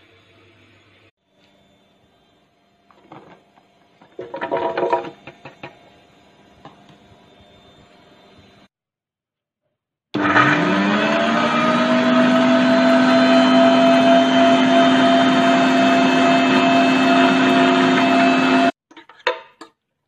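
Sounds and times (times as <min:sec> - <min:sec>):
blender motor running: 0:10.2 - 0:18.8.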